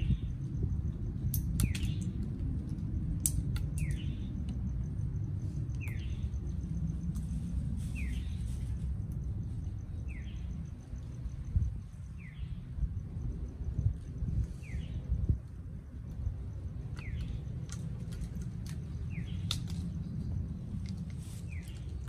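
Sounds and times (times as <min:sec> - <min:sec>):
low rumble: 0:00.0 - 0:22.0
bird chirping: 0:01.5 - 0:02.2, 0:03.6 - 0:04.5, 0:05.7 - 0:06.6, 0:07.8 - 0:08.8, 0:09.6 - 0:12.9, 0:14.5 - 0:15.2, 0:16.9 - 0:17.6, 0:18.8 - 0:20.2.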